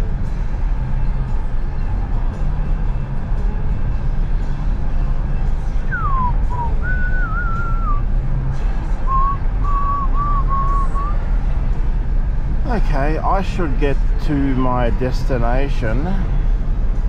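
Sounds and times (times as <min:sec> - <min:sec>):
car road and engine rumble: 0:00.0 - 0:17.0
music on car stereo: 0:00.0 - 0:17.0
person whistling: 0:05.9 - 0:08.0, 0:09.1 - 0:11.2.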